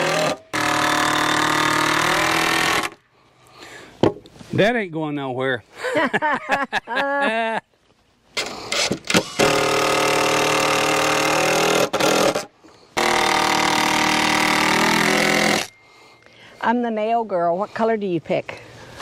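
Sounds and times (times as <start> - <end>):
power drill driving screws: 0.0 - 3.0, 8.4 - 15.8.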